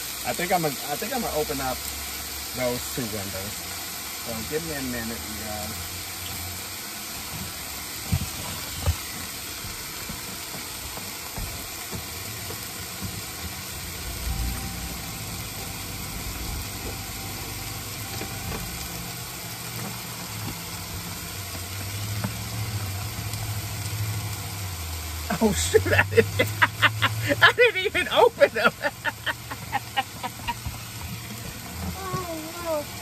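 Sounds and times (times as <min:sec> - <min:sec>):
meat sizzling in a pot: 0:00.0 - 0:33.0
low hum: 0:13.6 - 0:24.9.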